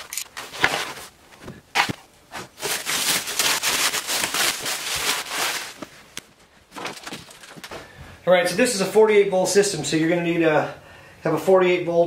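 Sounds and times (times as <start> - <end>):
plastic wrap crinkling: 0.0 - 7.9.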